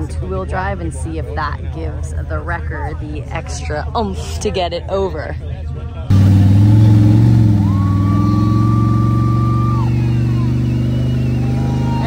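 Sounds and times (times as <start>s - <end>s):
heavy truck engine running: 6.1s - 12.0s.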